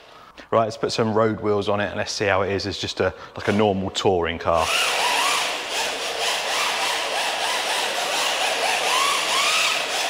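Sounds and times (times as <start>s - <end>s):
electric motor whining: 4.6s - 10.0s.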